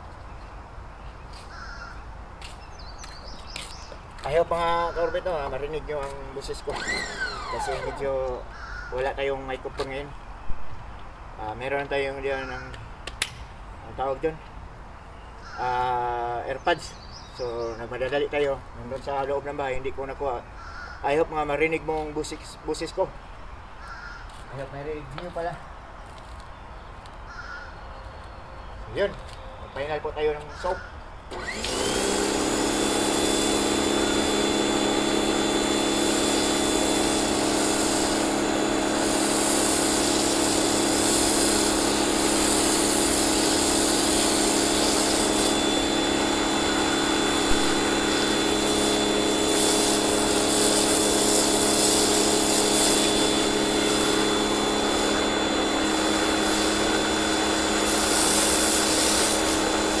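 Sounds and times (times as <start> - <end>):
pressure washer motor humming: 6.0 - 8.4, 31.3 - 60.0
foam spray hissing: 31.9 - 60.0.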